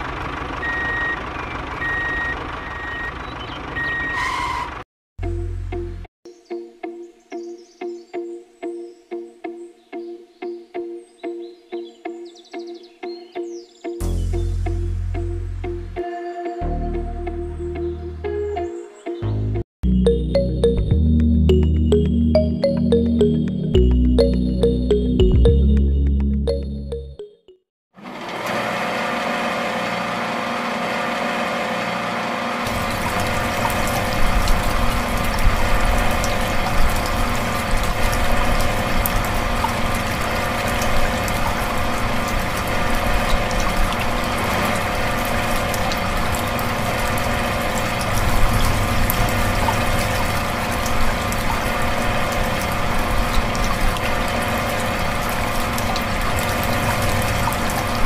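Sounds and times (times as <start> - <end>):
water rushing and splashing: 32.7 - 58.0.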